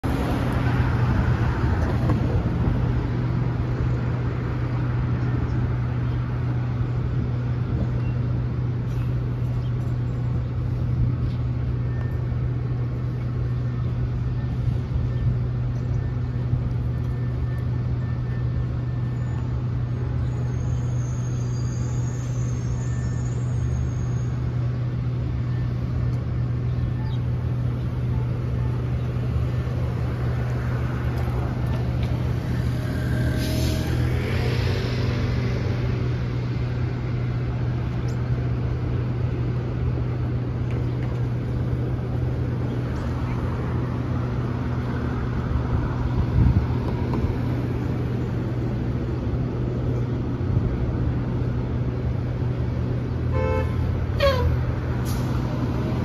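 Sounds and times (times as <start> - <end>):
cars passing: 0.0 - 56.0
steady low traffic hum: 0.0 - 56.0
faint high squeal: 17.1 - 24.5.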